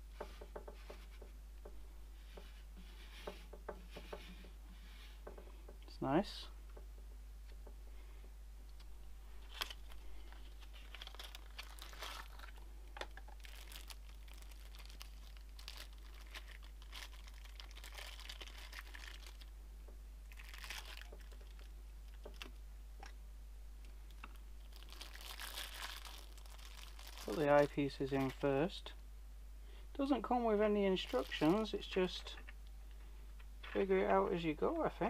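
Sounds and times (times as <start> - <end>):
plastic bags crinkling: 9.3 - 19.5, 20.3 - 22.5, 24.1 - 28.4, 30.0 - 32.5.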